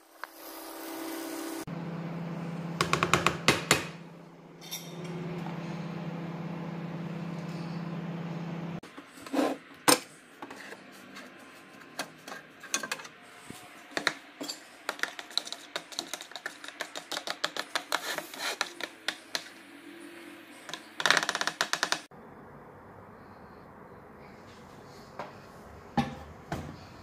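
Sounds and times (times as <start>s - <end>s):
spoon stirring in plastic bowl: 13.9s - 19.6s.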